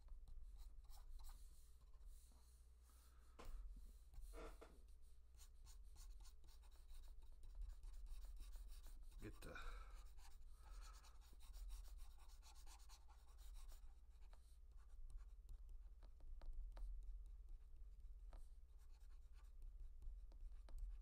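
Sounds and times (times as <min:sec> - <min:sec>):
stylus scratching on tablet: 0:00.4 - 0:01.5, 0:05.4 - 0:21.0.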